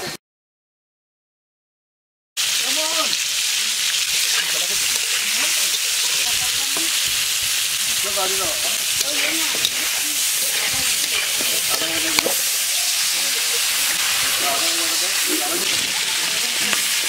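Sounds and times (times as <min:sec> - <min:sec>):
slices sizzling in hot oil: 0:02.4 - 0:17.0
metal spatula scraping a pan: 0:04.1 - 0:17.0.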